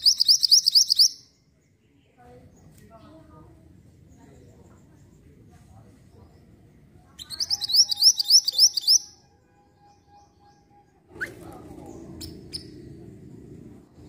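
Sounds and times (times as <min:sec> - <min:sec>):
bird song of rising notes: 0:00.0 - 0:01.9, 0:06.3 - 0:14.0
faint noise: 0:01.3 - 0:14.0.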